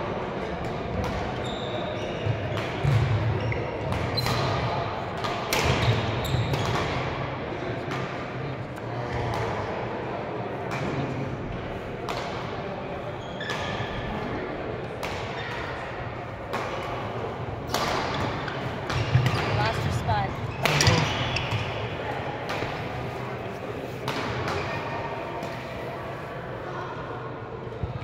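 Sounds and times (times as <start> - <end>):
murmur of voices: 0.0 - 28.0
shoes squeaking on court: 1.4 - 4.4, 13.2 - 14.0, 18.4 - 21.9
rackets hitting shuttlecock: 2.5 - 7.2, 10.7 - 11.2, 12.0 - 12.6, 13.4 - 25.8.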